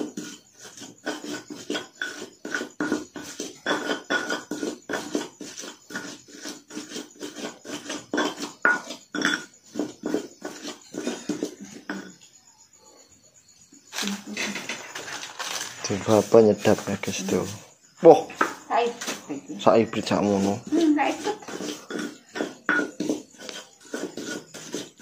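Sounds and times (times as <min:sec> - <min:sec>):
pestle pounding in mortar: 0:00.0 - 0:12.0, 0:20.6 - 0:25.0.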